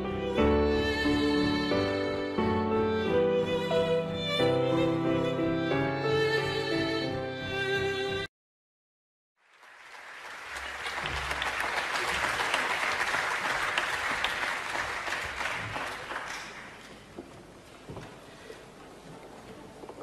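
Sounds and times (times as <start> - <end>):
crowd clapping: 9.4 - 17.1.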